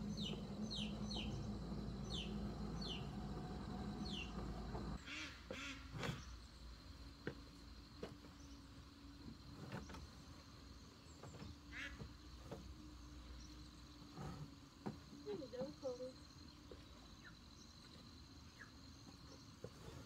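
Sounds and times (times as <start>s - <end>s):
small bird chirp: 0.0s - 4.5s.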